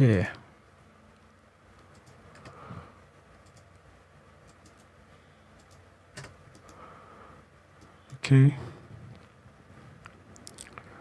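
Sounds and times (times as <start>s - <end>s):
mouse clicks: 4.4s - 4.9s, 5.6s - 6.8s
keyboard keystrokes: 4.5s - 4.9s, 5.6s - 6.8s.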